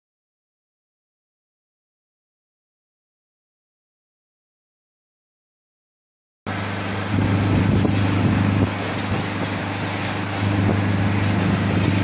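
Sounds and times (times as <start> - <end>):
outboard motor running: 6.5 - 12.0.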